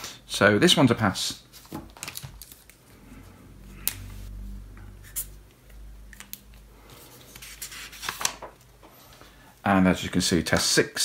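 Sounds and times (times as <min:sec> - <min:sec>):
paper rustling: 0:01.4 - 0:03.0, 0:06.8 - 0:08.7.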